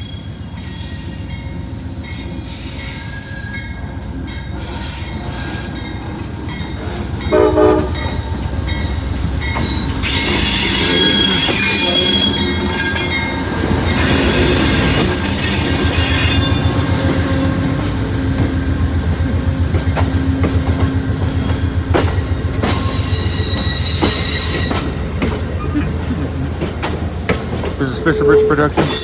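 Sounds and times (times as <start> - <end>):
train wheels squealing: 0.0 - 1.4, 2.0 - 7.1, 9.6 - 17.9, 21.2 - 25.0, 28.1 - 29.0
train rumbling past: 0.0 - 29.0
wheels clicking over rail joints: 19.7 - 29.0.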